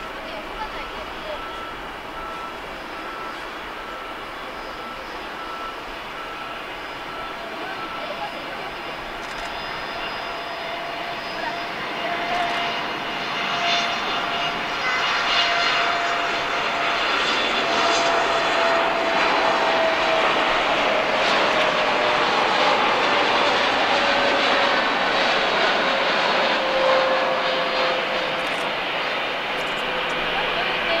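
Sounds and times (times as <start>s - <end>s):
jet airliner taking off: 0.0s - 31.0s.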